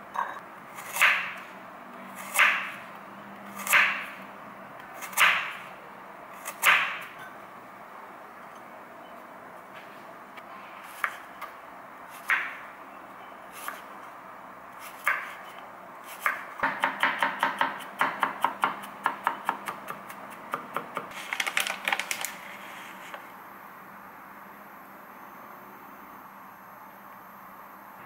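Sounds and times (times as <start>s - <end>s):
knife chopping on wooden board: 3.6s - 4.1s, 16.2s - 21.1s.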